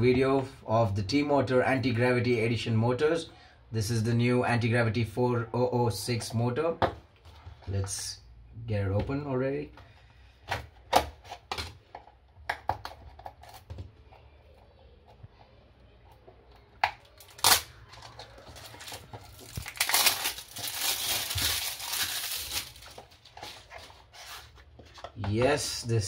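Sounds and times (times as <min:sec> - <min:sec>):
plastic wrapping crinkling: 0:17.0 - 0:25.2.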